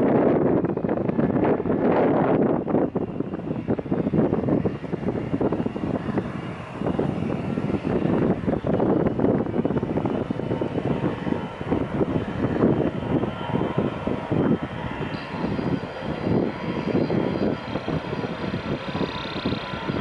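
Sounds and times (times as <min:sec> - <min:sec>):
jet engines running: 0:00.0 - 0:20.0
wind buffeting microphone: 0:00.0 - 0:20.0
thin high whine: 0:15.0 - 0:18.0.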